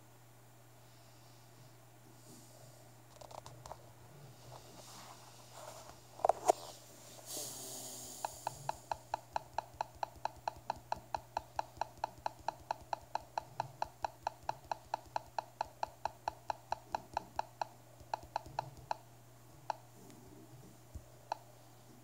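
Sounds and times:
touchscreen device clicking: 0:08.2 - 0:19.0.

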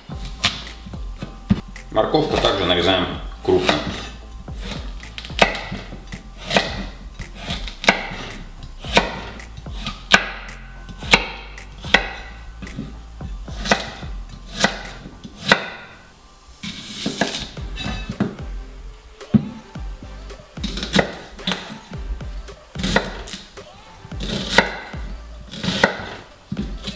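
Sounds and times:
knife chopping on wooden board: 0:03.6 - 0:12.9, 0:13.5 - 0:15.8, 0:22.8 - 0:23.4, 0:24.2 - 0:26.9.

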